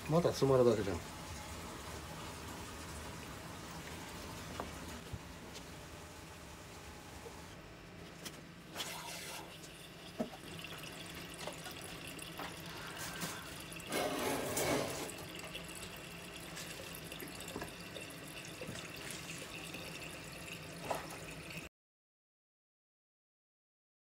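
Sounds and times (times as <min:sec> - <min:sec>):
water running into floor drain: 0:08.7 - 0:21.7.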